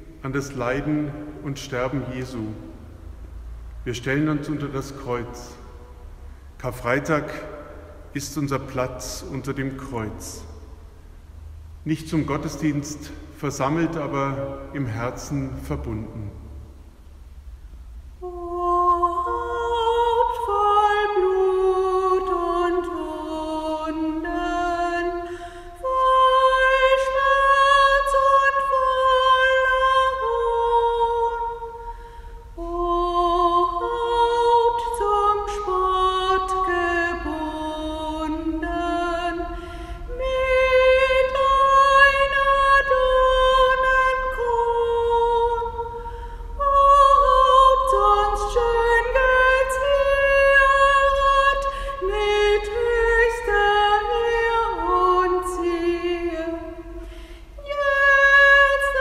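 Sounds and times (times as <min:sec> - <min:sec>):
woman singing: 0:18.2 - 0:59.0.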